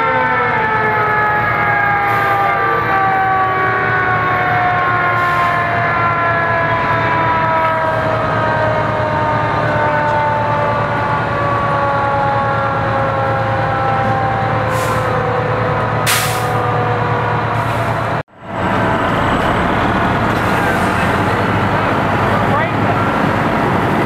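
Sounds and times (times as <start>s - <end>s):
mechanical siren winding down: 0.0s - 21.8s
fire engines idling: 0.0s - 24.0s
short hisses of air: 16.1s - 16.6s.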